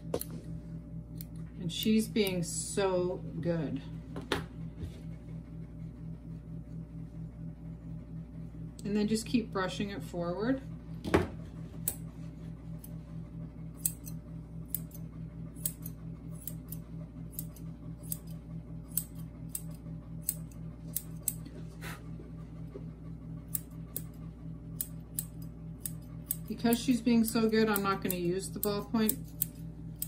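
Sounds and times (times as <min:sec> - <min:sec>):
shears snipping hair: 0:00.0 - 0:02.8, 0:11.8 - 0:13.0, 0:13.7 - 0:22.7, 0:23.4 - 0:30.0
steady low hum: 0:00.0 - 0:30.0.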